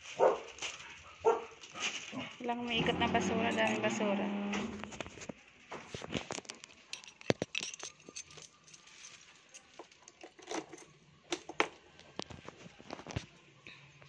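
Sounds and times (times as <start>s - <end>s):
keys jangling: 6.3s - 11.6s.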